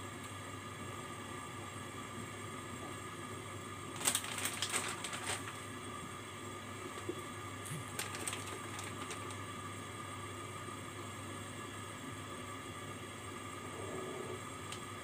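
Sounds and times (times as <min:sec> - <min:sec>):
steady hum: 0:00.0 - 0:15.0
rapid clicking and crackling: 0:04.0 - 0:05.6, 0:07.7 - 0:09.4.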